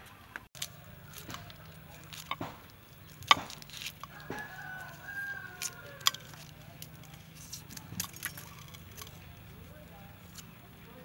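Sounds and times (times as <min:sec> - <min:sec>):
scissors snipping dried peppers: 0:00.6 - 0:09.7
rooster crowing: 0:04.0 - 0:06.7.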